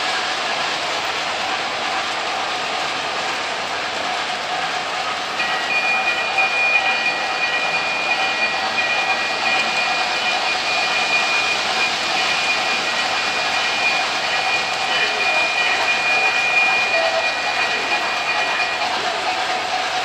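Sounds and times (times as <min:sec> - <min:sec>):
model train whirring: 0:00.0 - 0:20.0
high whine: 0:05.4 - 0:19.7.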